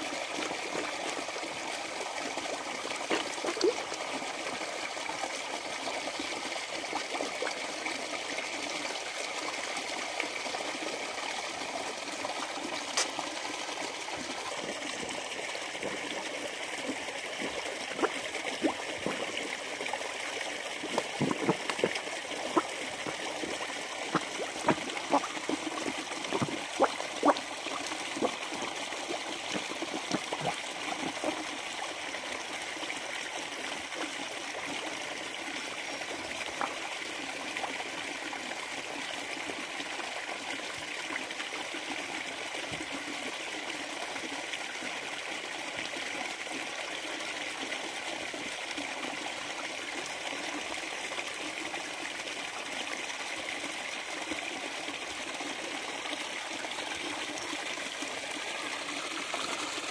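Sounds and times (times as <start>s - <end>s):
trickle of running water: 0.0s - 59.9s
fish slurping at surface: 3.0s - 4.0s, 14.2s - 31.6s.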